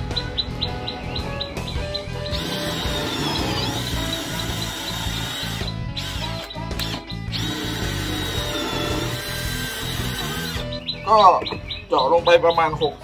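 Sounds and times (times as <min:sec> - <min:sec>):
drill boring into wood: 0:02.3 - 0:10.7.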